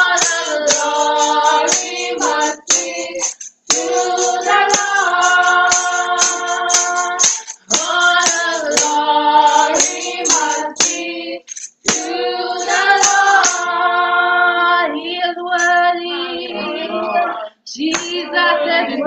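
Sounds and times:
hand claps: 0.0s - 9.0s, 17.9s - 18.2s
group singing gospel song: 0.0s - 19.0s.

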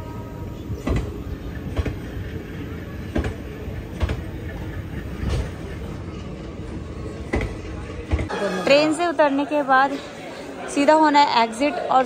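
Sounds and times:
train wheels rumbling on rails: 0.0s - 8.3s.

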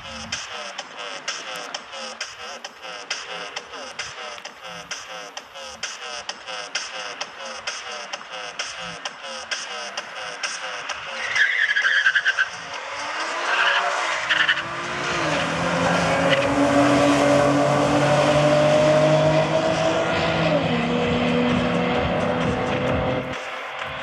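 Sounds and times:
car engines revving hard: 0.0s - 24.0s
tyres squealing: 0.6s - 12.8s, 13.4s - 17.5s.

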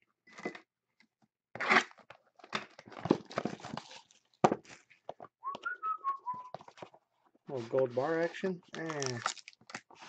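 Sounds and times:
plastic wrapping tearing and crinkling: 1.6s - 4.8s, 8.7s - 10.0s.

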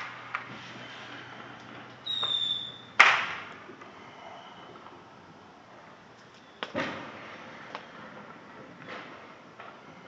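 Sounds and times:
firework whistling: 0.0s - 3.1s
firework bang: 6.7s - 7.4s.

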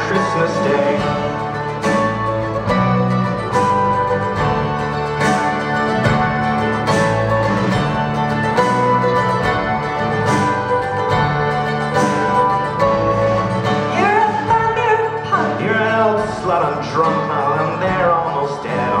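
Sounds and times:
accordion: 0.0s - 19.0s
acoustic guitar: 0.0s - 19.0s
woman singing: 13.9s - 16.1s.

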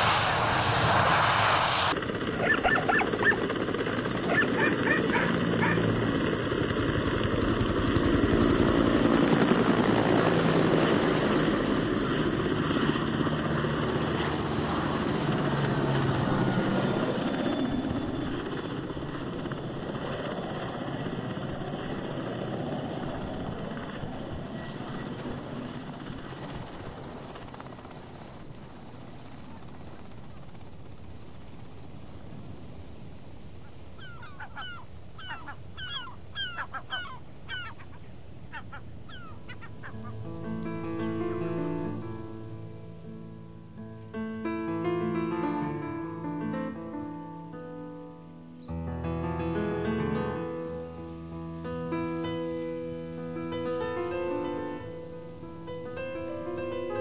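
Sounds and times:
high engine whine: 0.0s - 2.6s
aircraft engine running: 0.0s - 47.9s.

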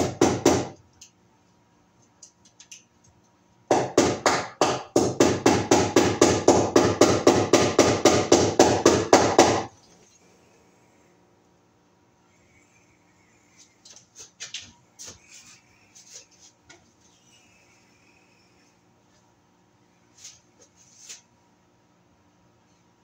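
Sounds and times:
hammer striking a nail: 0.0s - 0.8s, 3.7s - 9.7s.

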